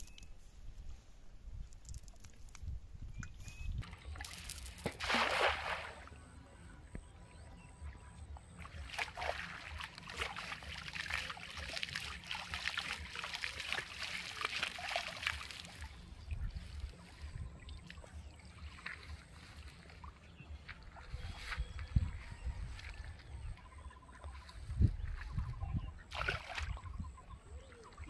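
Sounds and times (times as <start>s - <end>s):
water splashing and sloshing: 3.2s - 7.1s, 7.8s - 28.0s
net splashing into water: 3.8s - 6.2s, 8.6s - 16.1s, 26.1s - 26.9s.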